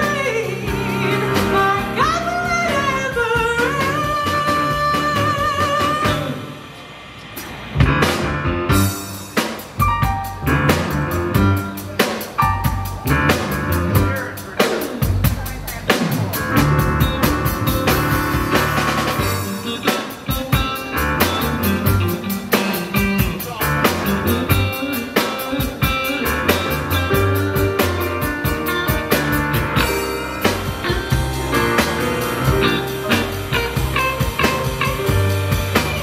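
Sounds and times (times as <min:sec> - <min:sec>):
upright bass line: 0:00.0 - 0:06.4, 0:09.8 - 0:36.0
live blues band playing: 0:00.0 - 0:36.0
drum beat: 0:07.4 - 0:36.0.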